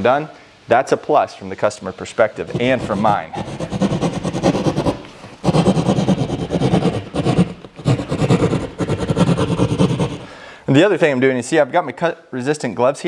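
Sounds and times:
hand saw cutting drywall: 0:02.4 - 0:10.3.

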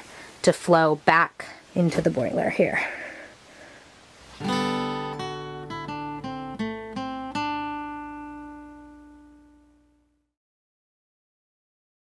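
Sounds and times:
acoustic guitar strummed and plucked: 0:04.2 - 0:10.2.

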